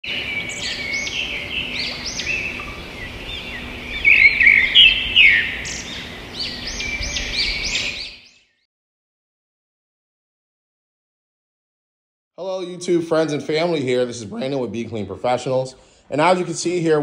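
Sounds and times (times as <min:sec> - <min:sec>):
birds chirping and singing: 0:00.0 - 0:08.6.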